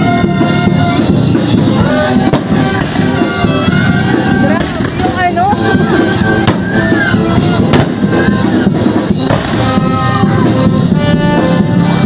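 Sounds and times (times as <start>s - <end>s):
loud music with drums: 0.0s - 12.0s
sharp bangs: 2.2s - 3.8s, 6.2s - 10.0s.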